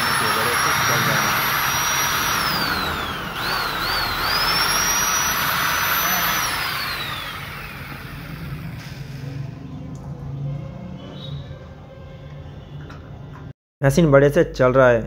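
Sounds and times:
electric drill motor whining: 0.0 - 9.0.

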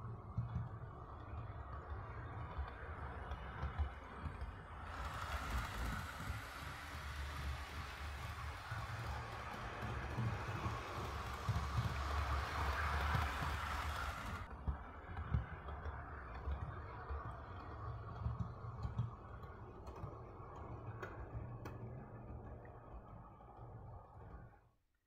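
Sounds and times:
wheels rolling on rails: 0.0 - 24.0
model train motor hum: 4.6 - 14.5.

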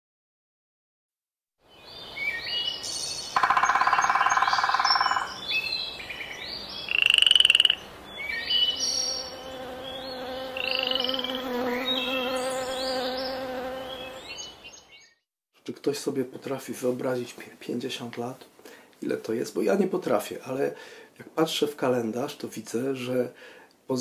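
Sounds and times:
flying insect hum: 6.8 - 14.8.

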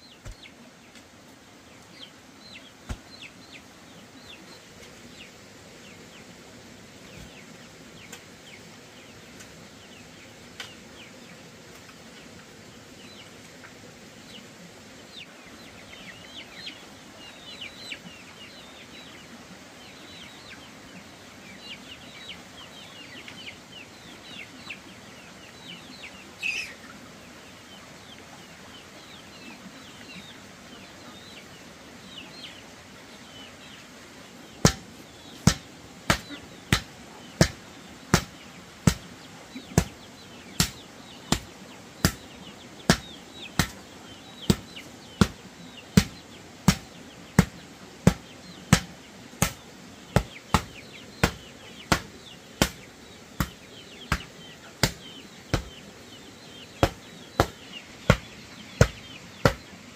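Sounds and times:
hand tool striking wood: 34.6 - 38.3, 40.6 - 42.2, 42.9 - 43.8, 46.0 - 49.6, 50.2 - 52.8, 53.4 - 55.7, 56.8 - 58.2, 58.8 - 59.6.

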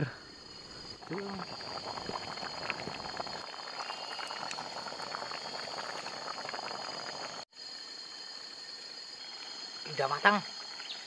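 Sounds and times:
curry bubbling at a boil: 0.4 - 11.0
popping crackle of bubbles: 0.9 - 7.4.

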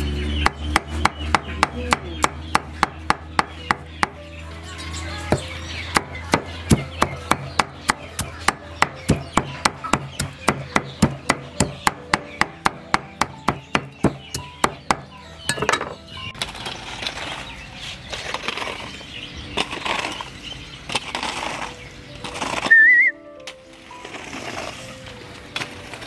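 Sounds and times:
cleaver chopping on wooden block: 0.4 - 4.2, 5.3 - 15.8.

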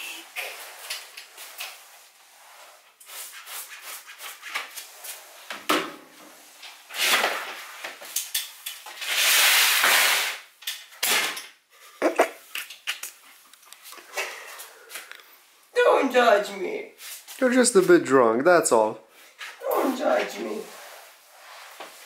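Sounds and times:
mop knocks and clatter: 5.4 - 9.0.

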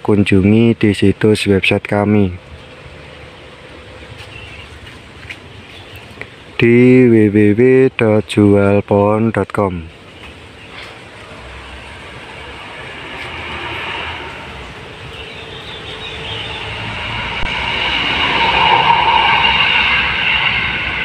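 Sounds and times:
vehicle rumbling past: 9.9 - 21.0.

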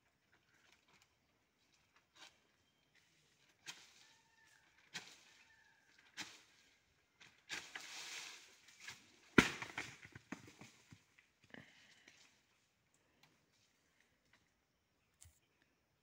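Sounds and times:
palm fronds rustling: 0.1 - 14.5
coconut thudding on ground: 9.3 - 11.0.

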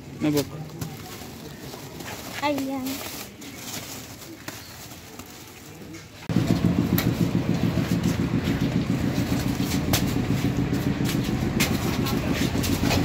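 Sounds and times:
engine idling: 6.3 - 13.0.

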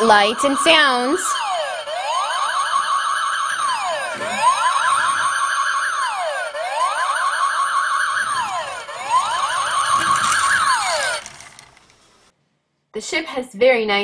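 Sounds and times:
toy electronic police siren: 0.0 - 11.8.

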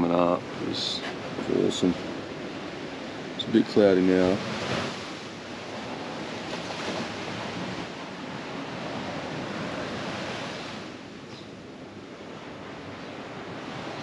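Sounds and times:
small waves washing on sand: 0.0 - 14.0.

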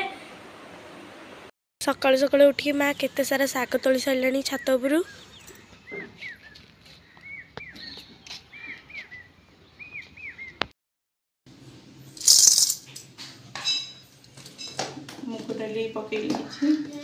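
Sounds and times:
bird chirping: 2.4 - 10.7
dry grains rattling in a steel bowl: 12.2 - 12.9.

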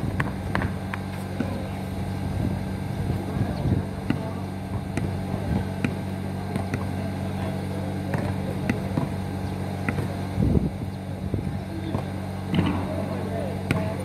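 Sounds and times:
basketball bouncing on asphalt: 0.0 - 1.7, 4.0 - 10.2, 11.8 - 14.0
steady low hum: 0.0 - 14.0.

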